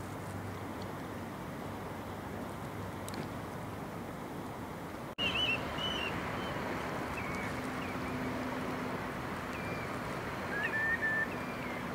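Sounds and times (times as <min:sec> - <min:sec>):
outdoor rushing ambience: 0:05.0 - 0:11.9
whistled bird calls: 0:05.2 - 0:08.4, 0:09.5 - 0:11.9.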